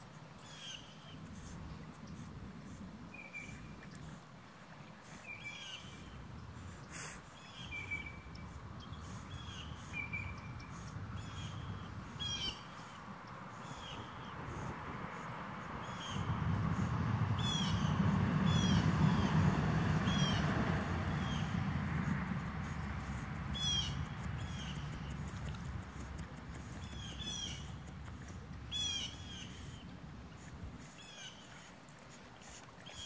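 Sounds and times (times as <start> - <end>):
low rumble: 15.7 - 30.8.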